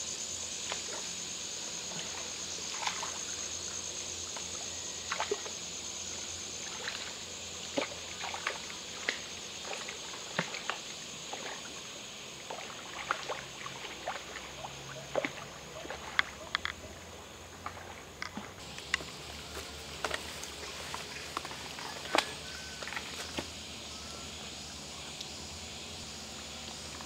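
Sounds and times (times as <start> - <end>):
fish splashing at water surface: 12.4 - 16.5
high-pitched background drone: 18.6 - 27.0.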